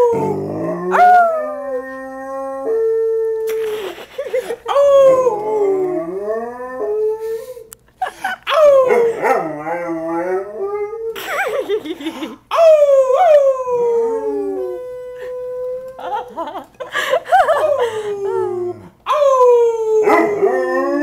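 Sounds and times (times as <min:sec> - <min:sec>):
dog howling: 0:00.0 - 0:03.5, 0:04.7 - 0:07.1, 0:08.5 - 0:11.1, 0:17.5 - 0:21.0.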